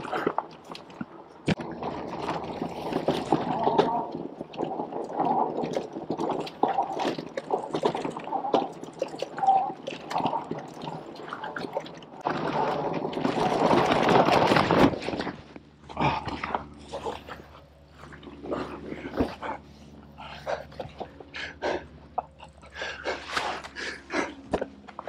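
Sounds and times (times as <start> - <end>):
bike tyres on dirt trail: 0.0 - 21.8
bike clicks and rattles: 12.2 - 19.6.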